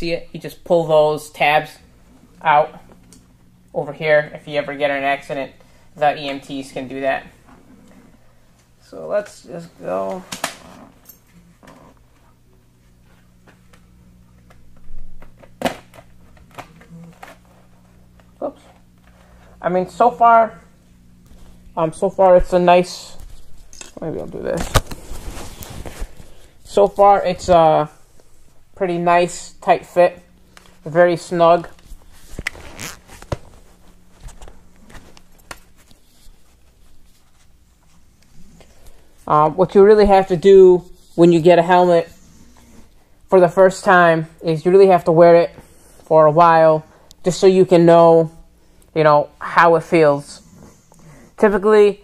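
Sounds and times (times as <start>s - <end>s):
steady low hum: 0.0s - 52.0s
helmet clicks and rustles: 31.6s - 37.6s
helmet scrapes and ticks: 31.7s - 33.4s.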